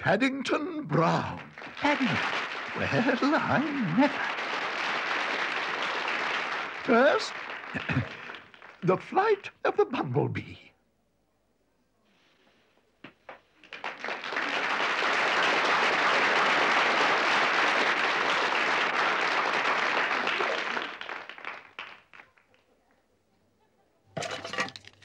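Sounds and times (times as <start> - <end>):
audience applause: 0.0 - 9.5, 13.3 - 22.4.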